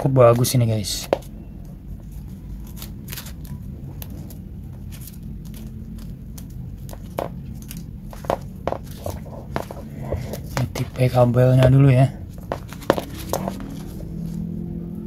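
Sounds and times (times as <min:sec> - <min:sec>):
low hum: 0:01.2 - 0:15.0
gloves rubbing on power cord: 0:04.2 - 0:14.5.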